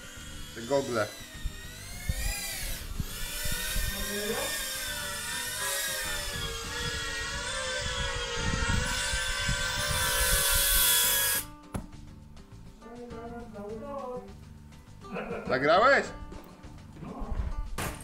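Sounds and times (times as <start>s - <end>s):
small drone motors whining: 0.0s - 11.5s.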